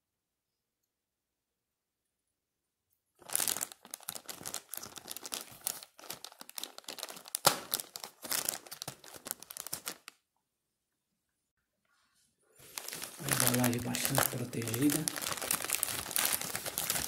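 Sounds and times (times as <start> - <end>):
plastic mailer crinkling: 3.2 - 10.2, 12.6 - 17.0
sharp plastic crack: 3.2 - 10.2.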